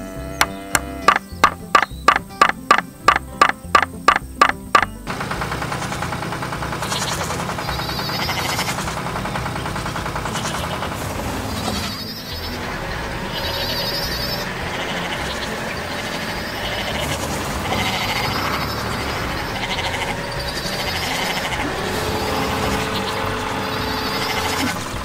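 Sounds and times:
cartoon goats bleating: 0.0s - 1.8s, 8.0s - 8.8s, 11.5s - 25.0s.

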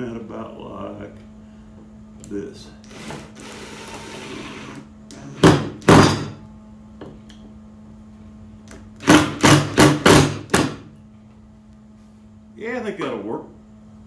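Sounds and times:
cordless drill driving screw: 2.8s - 4.8s.

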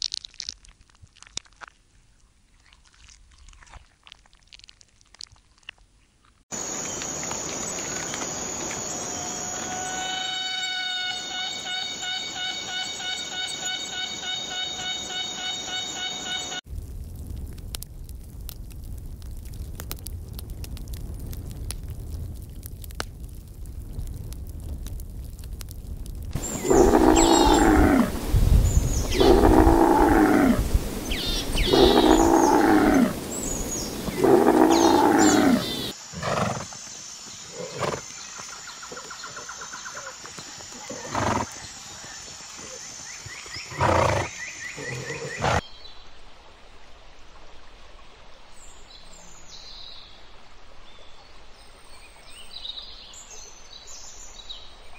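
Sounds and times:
faint bird chirps: 6.6s - 16.6s
large animal calling: 26.4s - 36.6s.

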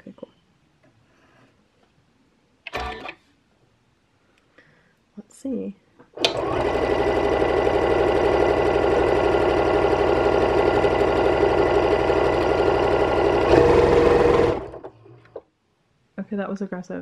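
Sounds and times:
sewing machine stitching fast: 6.2s - 15.0s.

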